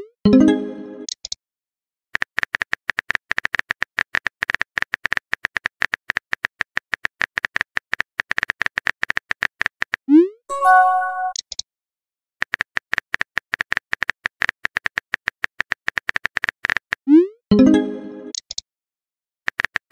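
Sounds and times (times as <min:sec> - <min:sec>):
bright chime: 0:10.5 - 0:11.3.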